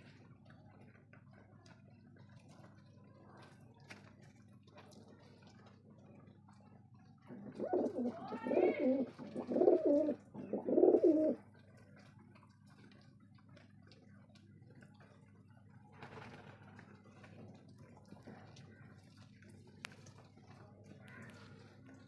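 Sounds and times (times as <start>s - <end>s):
pigeons cooing: 7.3s - 11.4s
beaks pecking grain: 7.5s - 15.0s.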